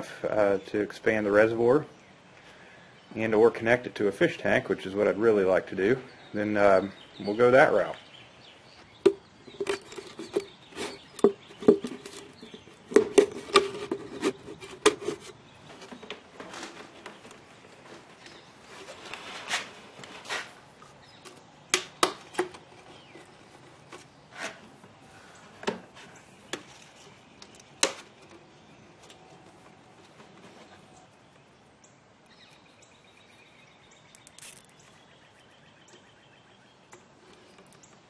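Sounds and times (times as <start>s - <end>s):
plastic clicking and knocking: 9.0s - 15.2s.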